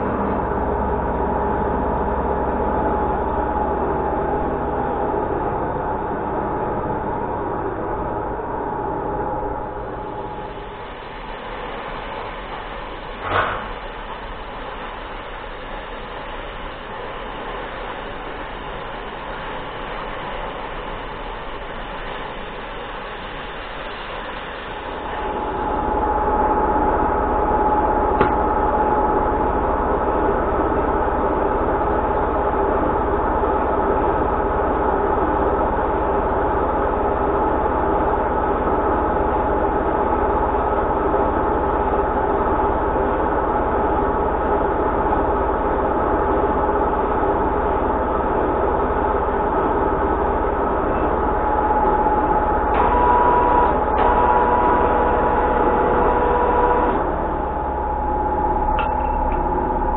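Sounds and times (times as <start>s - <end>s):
metal lathe running: 47.5s - 59.9s
higher tone: 57.4s - 59.9s.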